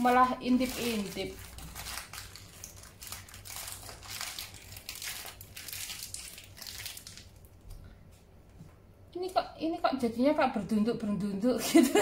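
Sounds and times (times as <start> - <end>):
plastic wrapper crinkling: 0.0 - 7.7.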